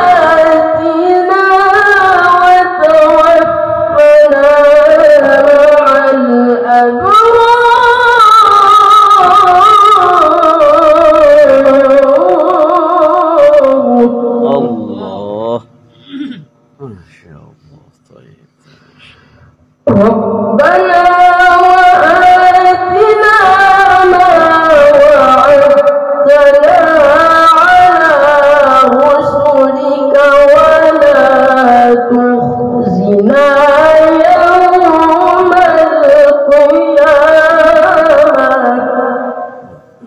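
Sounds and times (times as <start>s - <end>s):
boy chanting into a microphone: 9.2s - 40.0s.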